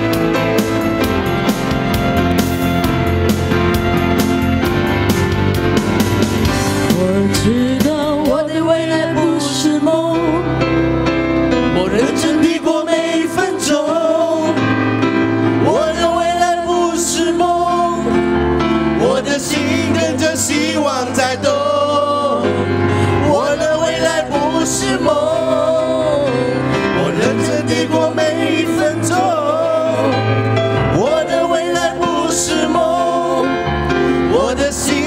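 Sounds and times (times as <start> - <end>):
instrumental backing music: 0.0 - 35.0
men singing pop song: 6.8 - 10.2, 11.7 - 14.6, 15.6 - 18.2, 19.0 - 35.0.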